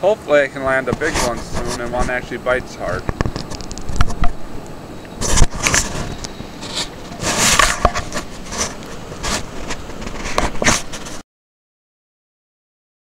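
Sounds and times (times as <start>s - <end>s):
camera handling rubbing: 0.9s - 4.4s, 5.1s - 11.2s.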